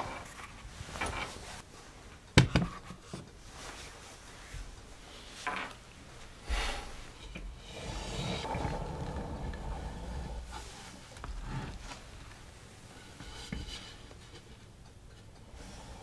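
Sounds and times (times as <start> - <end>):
rustling and brushing: 3.0 - 8.8, 10.0 - 14.7.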